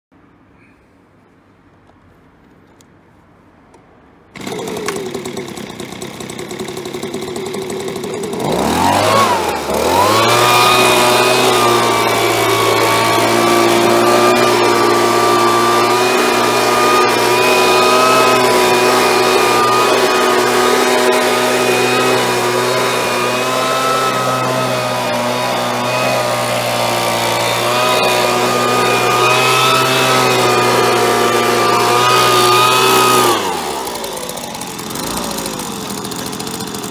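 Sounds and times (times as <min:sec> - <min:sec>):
leaf blower engine running: 0:04.3 - 0:36.9.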